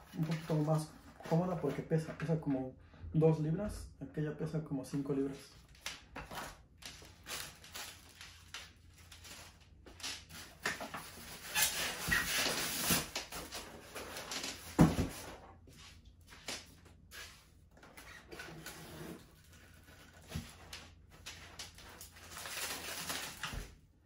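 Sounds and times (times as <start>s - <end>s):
foam squeaking against cardboard: 11.4s - 13.1s.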